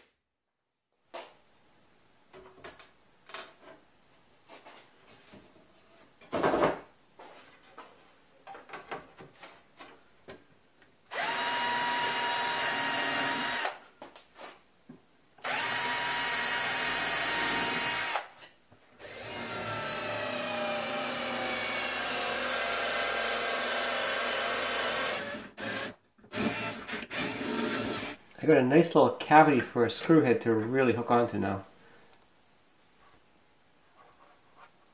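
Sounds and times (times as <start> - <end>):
cordless drill whining: 11.1 - 13.8, 15.4 - 18.3, 19.0 - 28.2.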